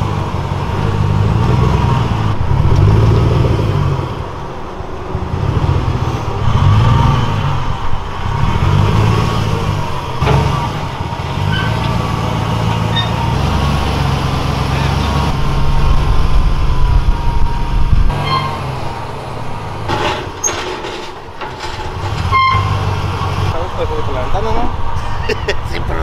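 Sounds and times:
pickup truck engine running: 7.5s - 20.4s.

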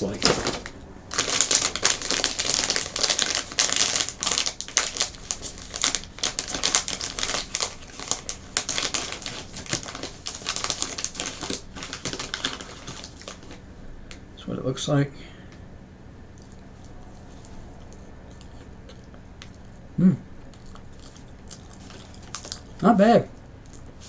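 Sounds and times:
snack packaging crinkling: 0.0s - 14.2s, 20.5s - 22.8s, 23.6s - 24.0s.

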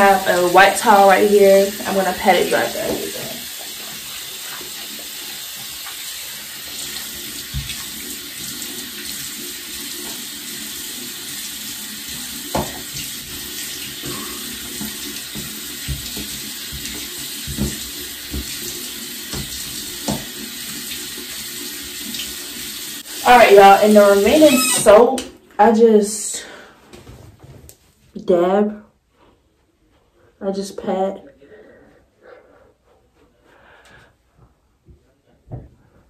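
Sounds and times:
faucet running into a sink: 0.0s - 25.1s.

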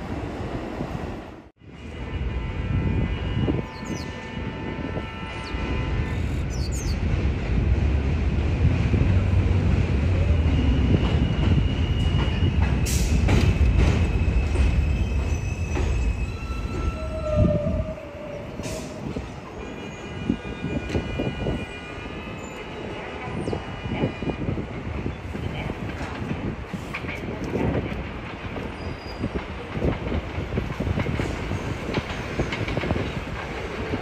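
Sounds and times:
subway train rumbling: 0.0s - 34.0s
high wheel squeals: 10.6s - 17.6s.

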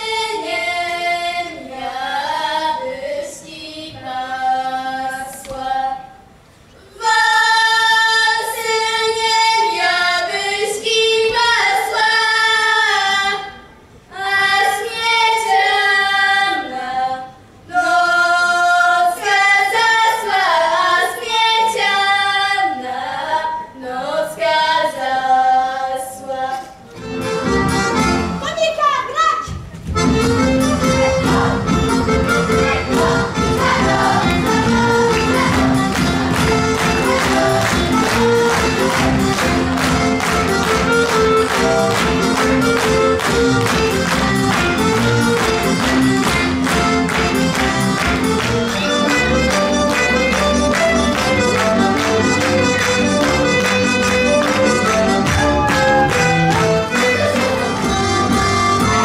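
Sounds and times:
girls singing unaccompanied: 0.0s - 26.9s, 30.5s - 43.0s.

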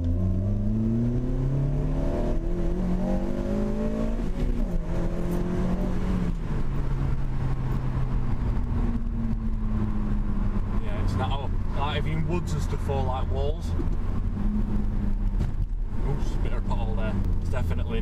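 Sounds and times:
car engine accelerating: 0.0s - 18.0s.

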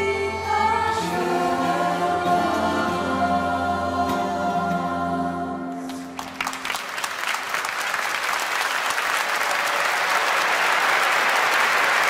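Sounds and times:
large audience applauding: 5.9s - 12.0s.

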